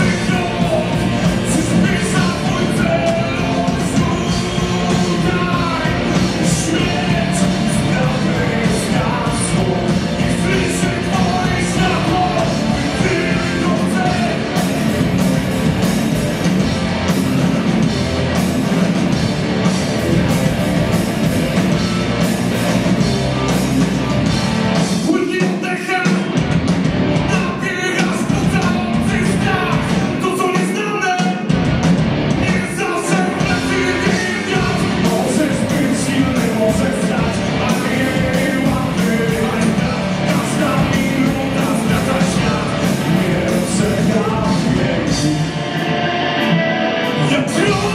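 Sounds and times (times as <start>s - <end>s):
man singing: 0.0s - 14.7s, 25.0s - 26.4s, 27.2s - 31.5s, 32.4s - 46.0s, 47.1s - 47.9s
bass: 0.0s - 25.4s, 26.3s - 30.7s, 31.5s - 47.9s
drums: 0.0s - 47.9s
electric guitars: 0.0s - 47.9s.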